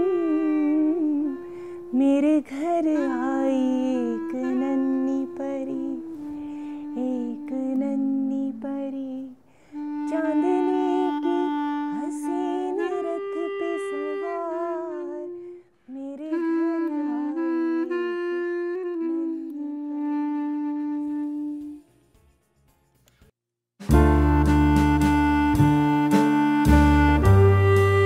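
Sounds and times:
woman singing a lullaby softly: 0:00.0 - 0:20.3
short breaths: 0:01.5 - 0:01.9, 0:06.4 - 0:06.9, 0:09.4 - 0:09.8.

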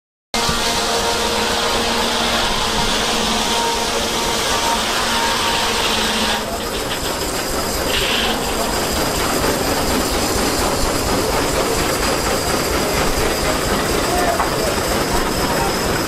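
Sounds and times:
sawmill machinery clatter: 0:00.4 - 0:16.0
steam engine chuffing: 0:00.4 - 0:16.0
hiss of steam: 0:07.8 - 0:15.9.

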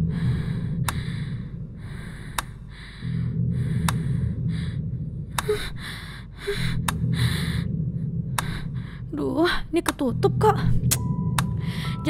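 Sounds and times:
woman breathing fast in fear: 0:00.0 - 0:07.8
low hum: 0:00.0 - 0:12.0
sharp clicks: 0:02.3 - 0:02.6, 0:03.8 - 0:04.0, 0:06.8 - 0:07.0, 0:08.3 - 0:08.7.

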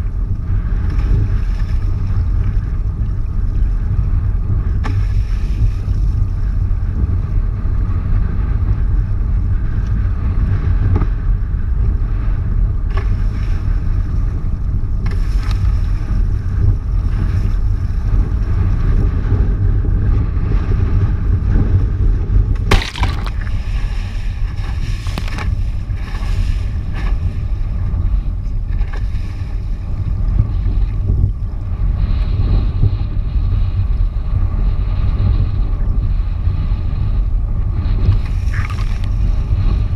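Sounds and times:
wind rumble on microphone: 0:00.0 - 0:39.9
sharp splash or knock: 0:22.6 - 0:23.7
water rushing and splashing: 0:22.7 - 0:27.2.

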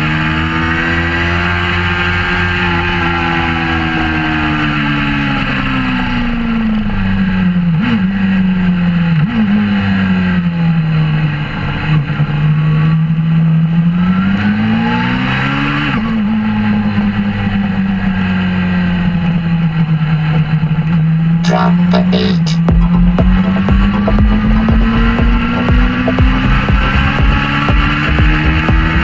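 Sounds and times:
motorcycle engine revving: 0:00.0 - 0:21.9, 0:22.6 - 0:29.0.

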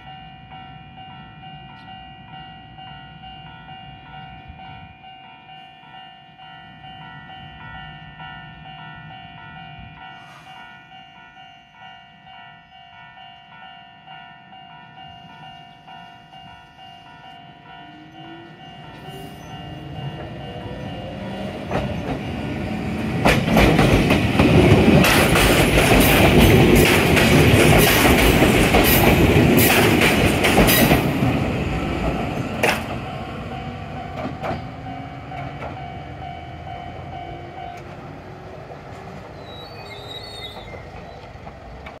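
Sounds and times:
electric train passing: 0:00.0 - 0:42.0
wheels clacking over rail joints: 0:18.8 - 0:42.0.

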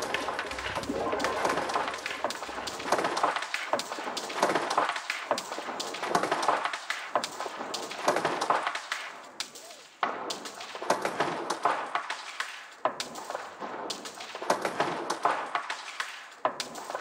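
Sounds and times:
repeating electronic clicks and knocks: 0:00.0 - 0:03.4.

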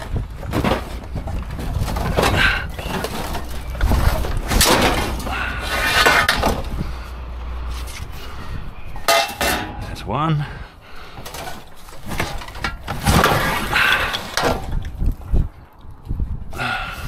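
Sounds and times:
scrap metal clanking: 0:00.0 - 0:07.1, 0:07.7 - 0:10.1, 0:11.1 - 0:15.0.

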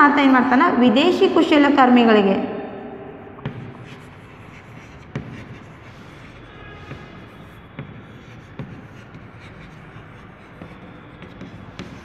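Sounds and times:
chalk scratching on blackboard: 0:03.4 - 0:12.0
chalk tapping on board: 0:03.4 - 0:12.0.

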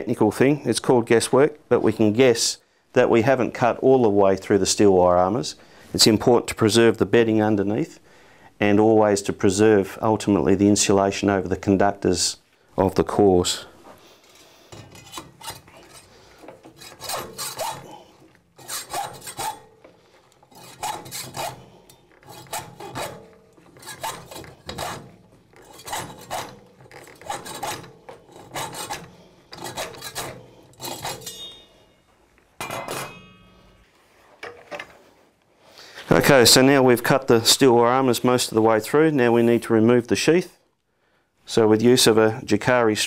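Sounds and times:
hacksaw cutting cable: 0:14.2 - 0:31.7.

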